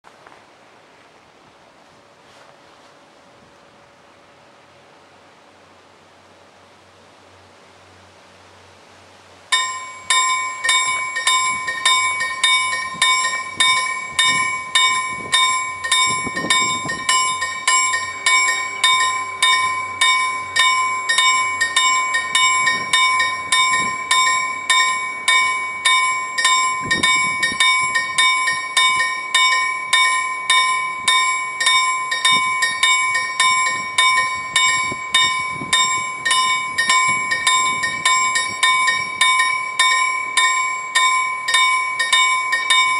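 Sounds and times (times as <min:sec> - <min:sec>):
level crossing warning bell: 0:09.5 - 0:42.9.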